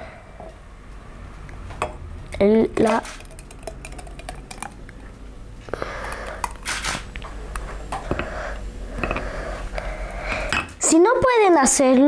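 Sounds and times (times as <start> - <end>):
milkshake splashing pour: 3.1 - 4.8.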